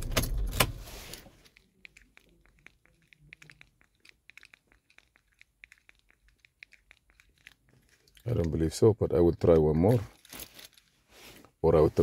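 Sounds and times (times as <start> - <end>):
rustling: 10.0 - 12.0.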